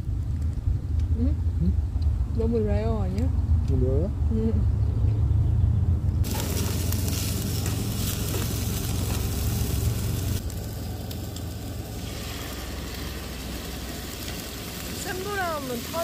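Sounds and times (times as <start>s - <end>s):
low rumble: 0.0s - 15.1s
meat sizzling on a grill: 6.2s - 16.0s.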